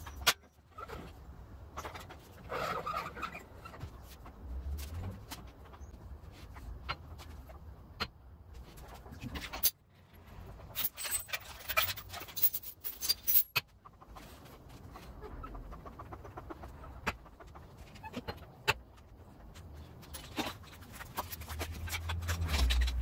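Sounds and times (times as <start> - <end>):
sleeves rustling against parts: 0.0 - 15.2, 17.6 - 23.0.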